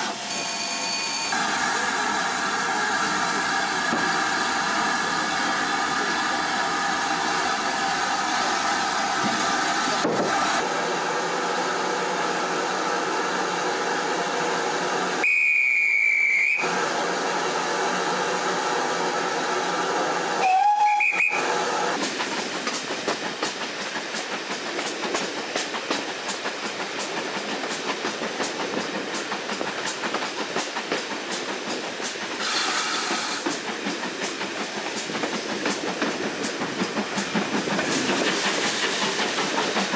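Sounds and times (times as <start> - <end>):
high steam whistle: 0.0 - 5.7, 15.2 - 16.9, 20.4 - 22.0
steam locomotive hissing: 0.0 - 39.9
train wheels rattling on track: 1.3 - 10.7, 16.6 - 39.9.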